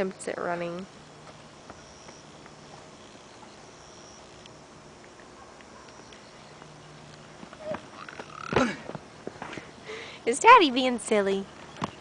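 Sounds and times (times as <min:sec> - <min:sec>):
steady low hum: 0:00.0 - 0:12.0
small ticks: 0:04.2 - 0:08.6.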